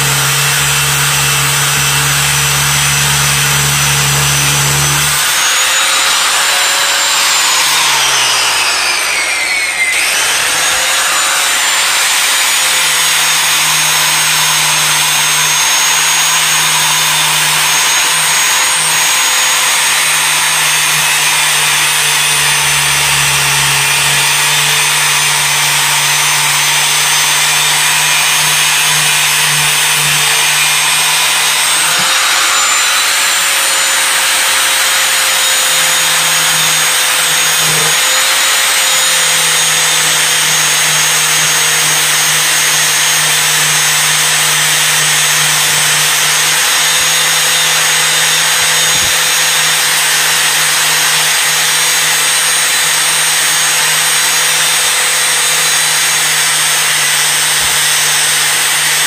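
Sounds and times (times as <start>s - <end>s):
angle grinder grinding metal: 0.0s - 59.0s.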